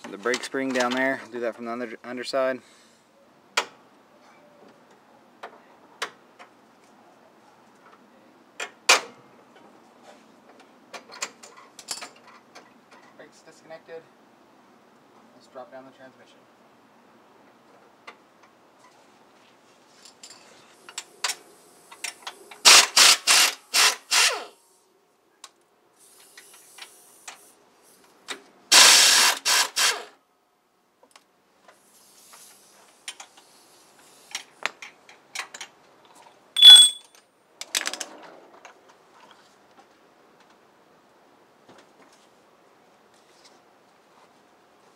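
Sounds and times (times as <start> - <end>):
impact wrench bursts: 22.6 - 24.5, 28.7 - 30.1
ringing metal clink: 36.6 - 37.1.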